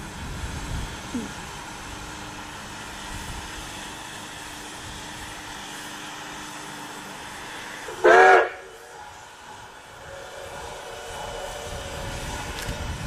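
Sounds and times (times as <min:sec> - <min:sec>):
steam whistle blast: 0:07.8 - 0:12.5.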